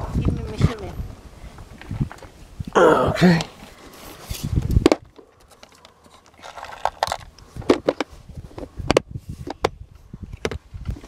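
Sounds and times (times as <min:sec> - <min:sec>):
hands handling plastic tackle box: 0:03.4 - 0:11.0.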